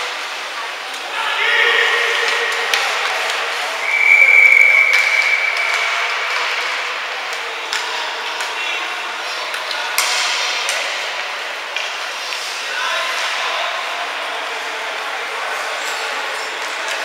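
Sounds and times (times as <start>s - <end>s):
referee's whistle blast: 1.3s - 6.8s.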